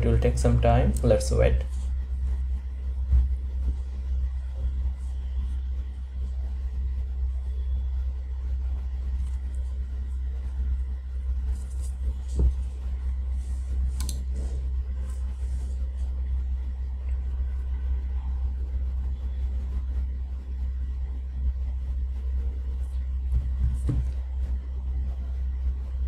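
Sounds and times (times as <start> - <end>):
low rumble: 0.0 - 26.0
short thump: 23.3 - 24.1.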